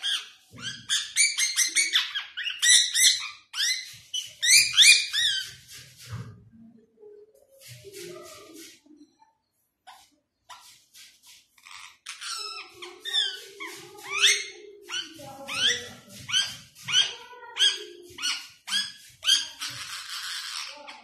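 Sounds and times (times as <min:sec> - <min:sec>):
parakeet squawking: 0:00.0 - 0:05.6, 0:11.6 - 0:21.0
parakeet chirps: 0:00.0 - 0:05.7, 0:11.6 - 0:21.0.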